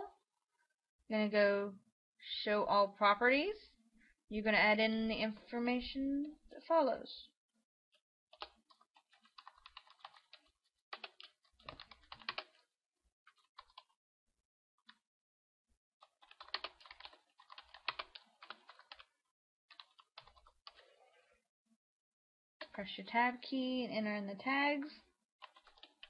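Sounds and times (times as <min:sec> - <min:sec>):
computer keyboard typing: 0:08.3 - 0:12.6, 0:13.3 - 0:13.9, 0:16.0 - 0:19.1, 0:19.7 - 0:20.9, 0:25.4 - 0:26.0.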